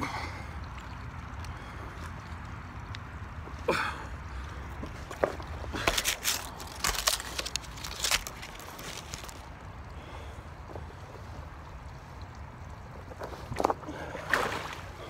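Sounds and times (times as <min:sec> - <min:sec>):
jacket crackling and rustling: 0:05.8 - 0:09.5.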